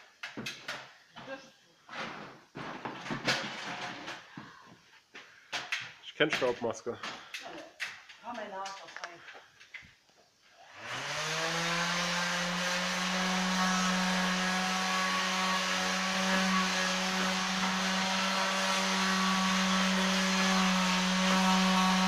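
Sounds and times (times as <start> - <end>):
electric sander humming: 10.7 - 22.0.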